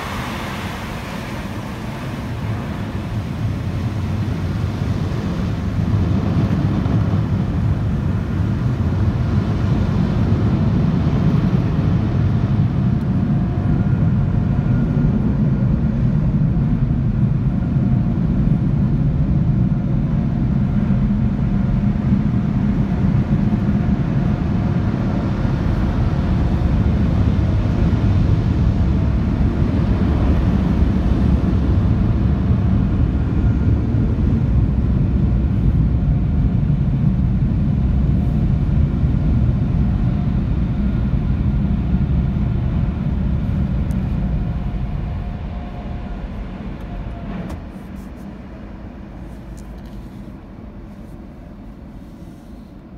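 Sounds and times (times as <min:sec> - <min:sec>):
car wash air dryer blowers: 0:00.0 - 0:06.5.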